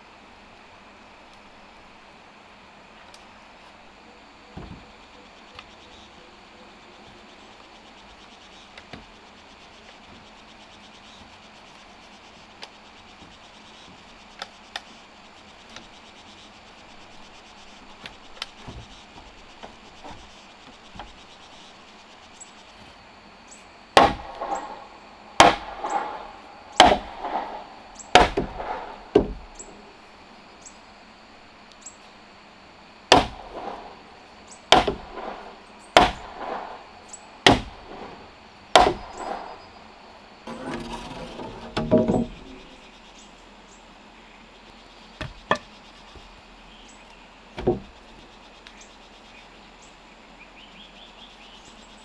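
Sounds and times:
wooden poles creaking: 24.0s - 29.8s, 40.5s - 42.8s
heavy blows on wood ringing: 24.0s - 30.0s, 33.1s - 34.1s, 34.7s - 39.6s, 40.5s - 42.8s.

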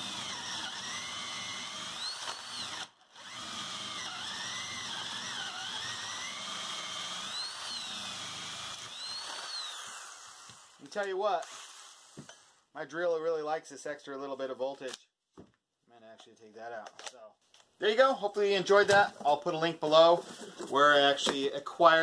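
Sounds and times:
cordless drill whining: 0.0s - 12.6s.

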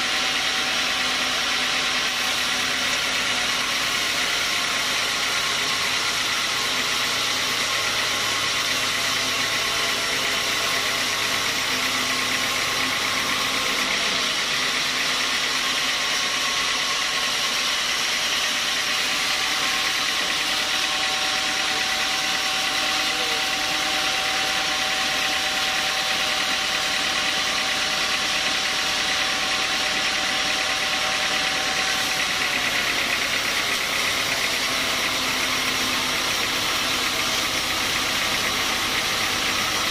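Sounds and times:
band sawmill cutting log: 0.0s - 39.9s.

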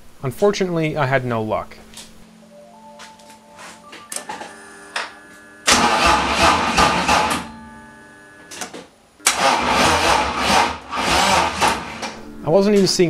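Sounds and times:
engine starter cranking: 5.7s - 7.5s, 8.6s - 12.2s.

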